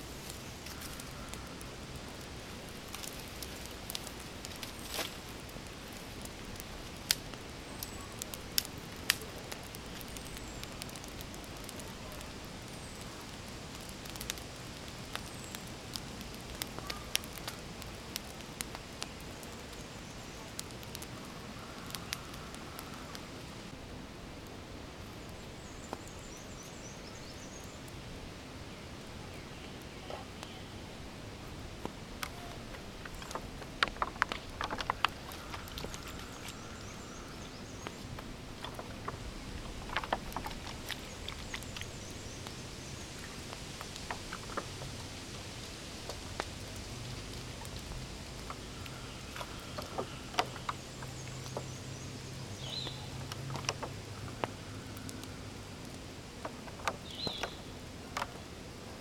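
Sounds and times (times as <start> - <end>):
steady outdoor hiss: 0.0 - 59.0
birds chirping: 25.0 - 58.5.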